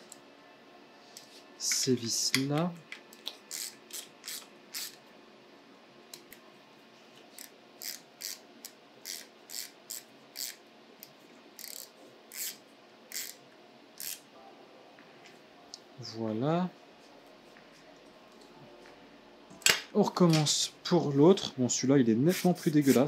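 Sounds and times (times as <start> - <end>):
hand ratchet clicking: 11.6 - 13.4.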